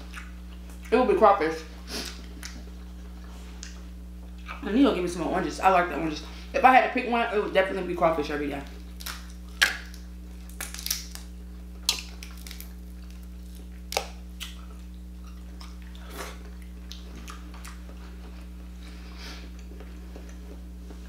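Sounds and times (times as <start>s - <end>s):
chewing: 0.0s - 0.9s, 1.9s - 4.6s, 8.6s - 21.0s
seafood shells cracking: 8.8s - 14.9s.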